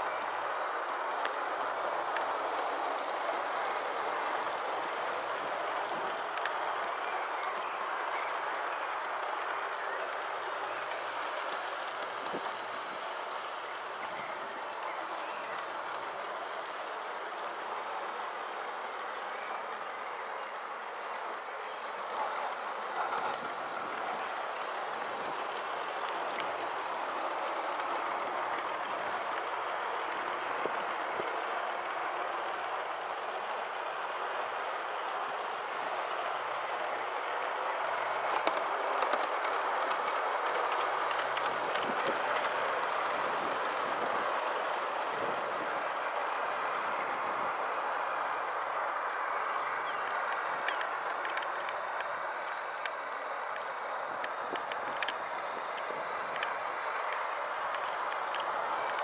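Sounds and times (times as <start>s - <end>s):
model train motor whirring: 0.0s - 59.0s
wheels clicking over rail joints: 0.0s - 59.0s.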